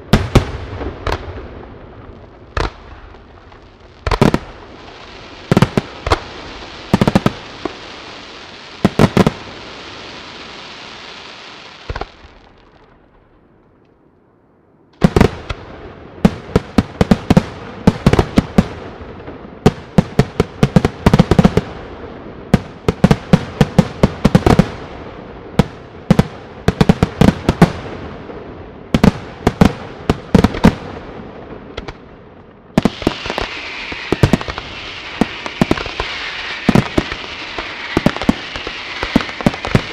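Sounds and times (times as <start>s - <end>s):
hissing crackling stars: 0.0s - 14.2s, 15.1s - 39.9s
rapid sharp firework bangs: 2.4s - 3.3s, 4.0s - 8.1s, 8.8s - 9.6s, 15.0s - 21.9s, 22.5s - 28.2s, 28.9s - 32.0s, 32.8s - 39.9s.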